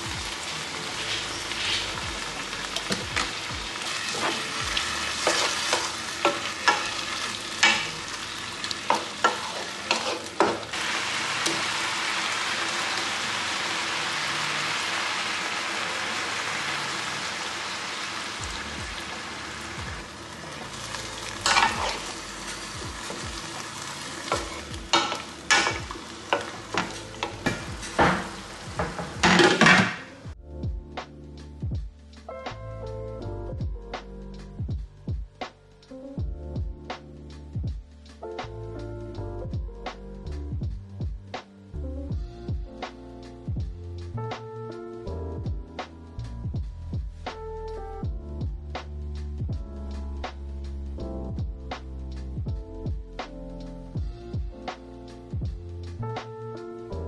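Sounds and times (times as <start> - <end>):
food sizzling in a pan: 0.0 - 30.4
utensil scraping and knocking pan: 8.9 - 10.7, 21.4 - 22.1.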